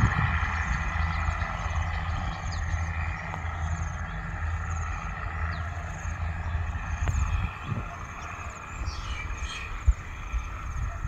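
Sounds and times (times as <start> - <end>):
diesel railcar engine droning: 0.0 - 11.0.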